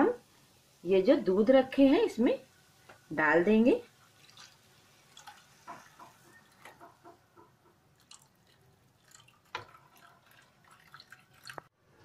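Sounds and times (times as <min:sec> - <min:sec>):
milk pouring gurgling and splashing: 0:04.1 - 0:07.0, 0:07.9 - 0:11.7.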